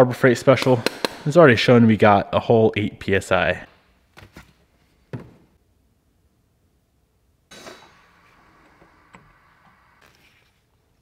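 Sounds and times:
sharp knock: 0.6 - 1.4.

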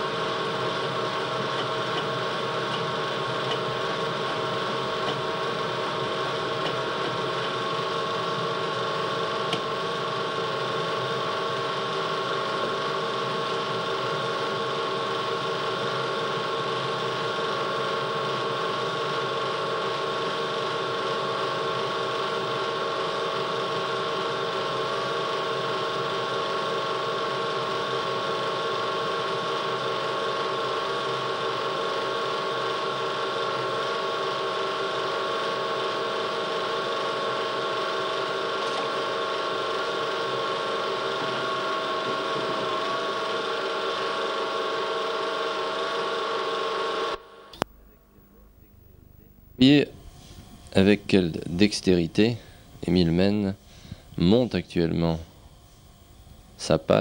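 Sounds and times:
high whine: 0.0 - 57.0
machine hum: 0.0 - 57.0.

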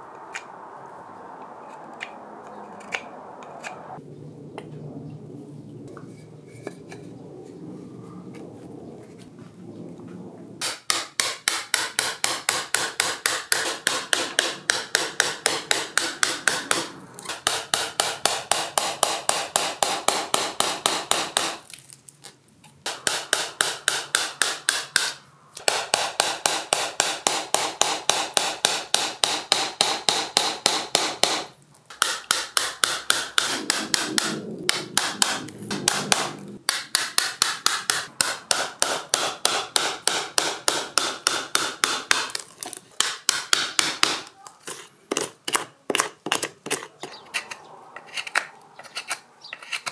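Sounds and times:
mallet tapping a carving gouge: 10.6 - 21.6, 22.9 - 34.3, 35.0 - 42.4, 43.0 - 47.2.

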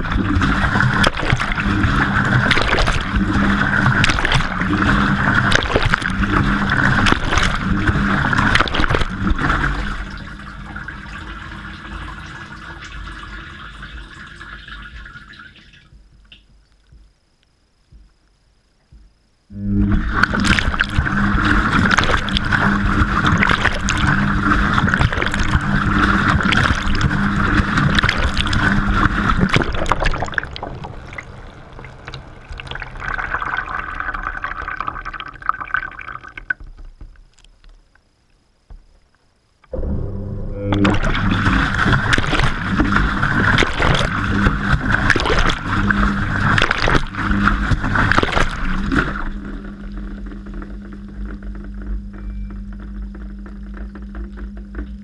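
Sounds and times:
water sloshing in washing machine: 0.0 - 16.6, 19.8 - 37.1, 40.8 - 51.0
washing machine motor hum: 0.0 - 38.0, 38.6 - 55.0
small knocks in drum: 15.8 - 17.2, 17.9 - 18.2, 18.8 - 19.2.

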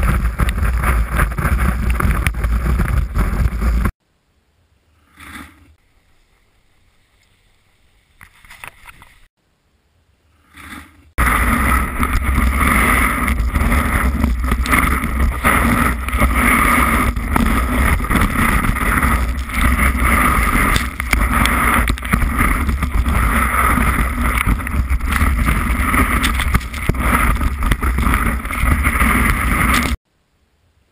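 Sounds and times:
skis running over packed snow: 0.0 - 3.9, 11.2 - 30.0
wind buffeting microphone: 0.0 - 4.0, 11.2 - 30.0.

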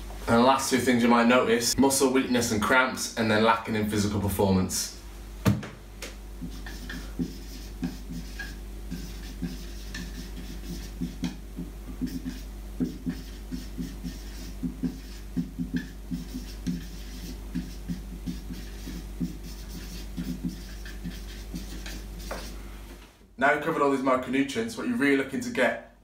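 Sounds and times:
marker squeaking on whiteboard: 6.4 - 22.6.

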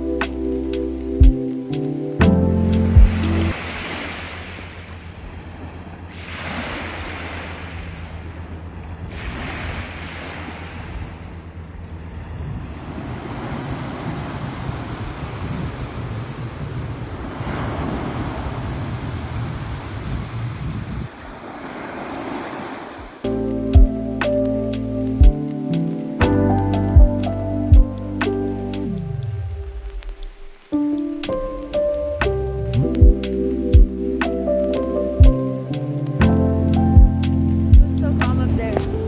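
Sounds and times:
wind rumble on microphone: 0.0 - 39.0
small waves breaking on a beach: 2.8 - 23.3.

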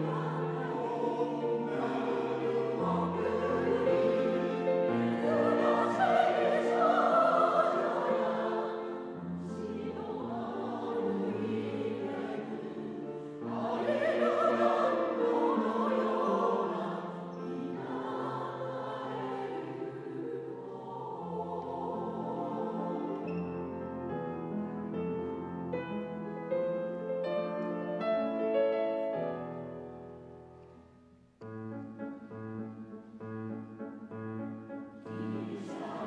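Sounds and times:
mixed choir singing: 0.0 - 24.6, 35.0 - 36.0
grand piano: 0.0 - 36.0.

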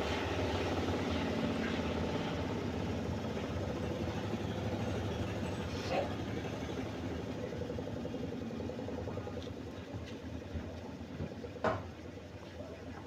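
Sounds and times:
washing machine humming: 0.0 - 13.0.

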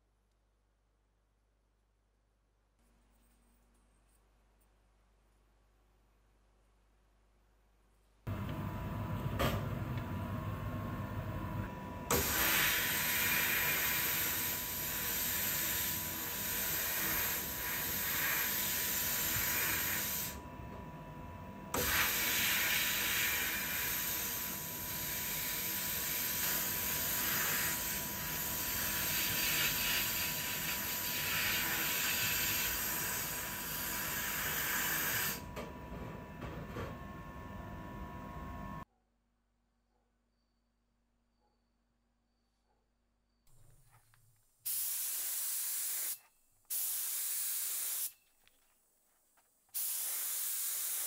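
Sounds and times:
spray nozzle hissing: 44.7 - 48.2, 49.7 - 51.0.

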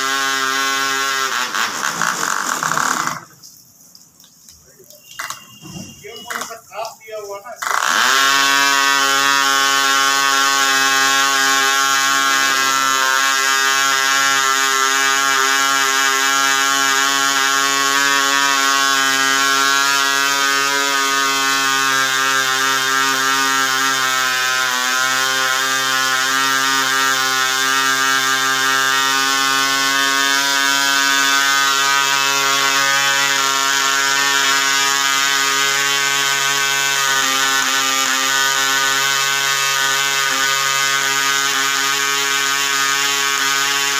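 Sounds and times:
model airplane engine buzzing: 0.0 - 3.5, 7.2 - 43.9.

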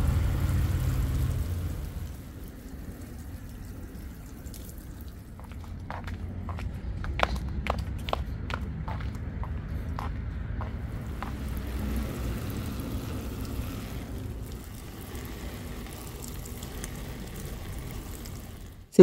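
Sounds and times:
water pouring onto plants: 0.0 - 6.0, 10.8 - 18.9.

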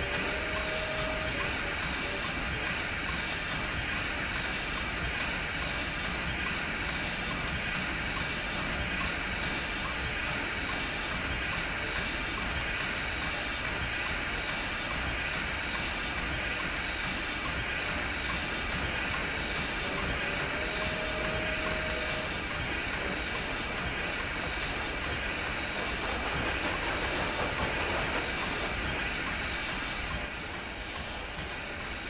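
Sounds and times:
steam train running: 0.0 - 32.0.

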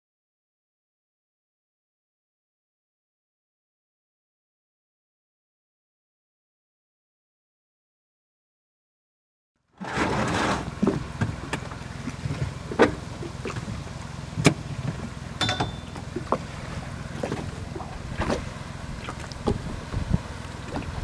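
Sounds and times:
low rumble: 10.0 - 21.0.

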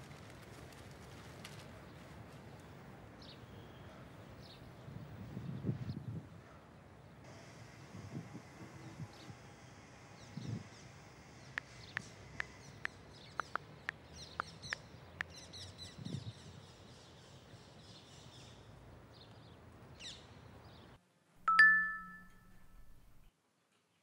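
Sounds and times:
birds chirping: 11.4 - 18.6
two-tone phone notification chime: 21.5 - 23.0.

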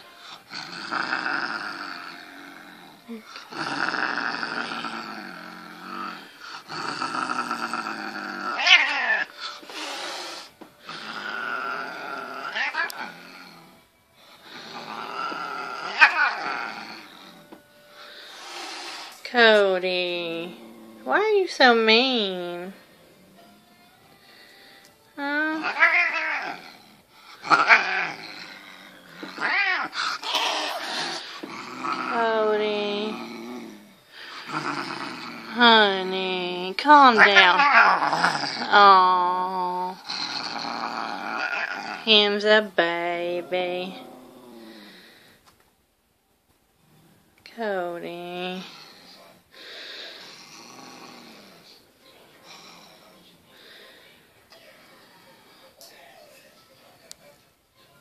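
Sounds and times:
cat growling: 0.0 - 21.2, 25.2 - 45.4, 48.4 - 53.8
cat yowling: 8.5 - 9.4, 12.4 - 13.2, 15.6 - 16.7, 25.5 - 26.8, 27.5 - 28.3, 29.3 - 31.2, 37.1 - 38.2.

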